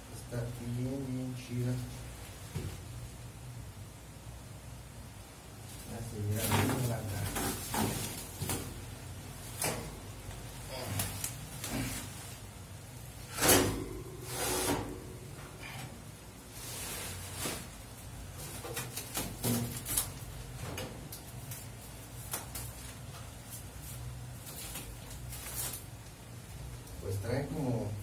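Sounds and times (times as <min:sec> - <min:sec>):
plastic wrap rustling: 0:05.6 - 0:12.6, 0:16.4 - 0:27.0.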